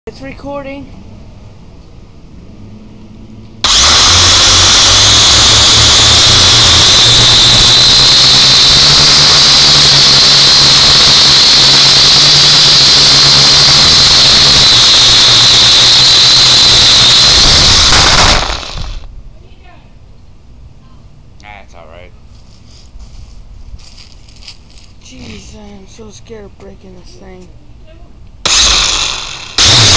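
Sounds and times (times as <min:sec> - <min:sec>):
high motor whine: 0:02.3 - 0:19.1, 0:28.4 - 0:29.9
drone propellers spinning: 0:03.6 - 0:19.1, 0:28.4 - 0:29.9.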